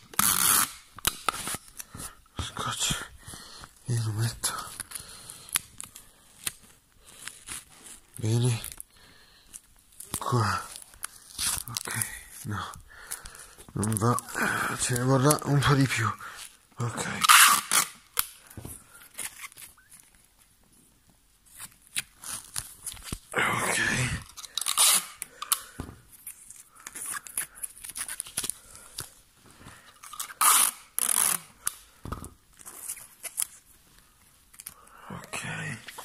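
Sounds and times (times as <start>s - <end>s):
sticky tape ripping off roll: 0.0s - 2.0s, 11.0s - 11.9s, 17.1s - 18.4s, 24.4s - 25.7s, 30.1s - 31.9s
tape crackling pressed down: 0.0s - 36.0s.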